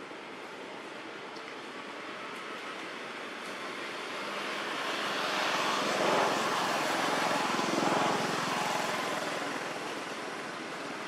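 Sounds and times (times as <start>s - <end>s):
vehicle passing by: 3.9s - 10.2s.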